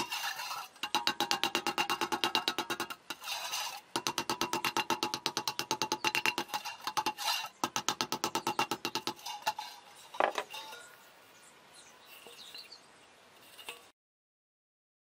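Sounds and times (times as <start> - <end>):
handling of metal bowl: 0.0 - 11.0, 13.4 - 13.9
hammer tapping on steel bowl: 0.8 - 3.1, 3.9 - 9.5
knocks: 0.8 - 3.1, 3.9 - 9.3.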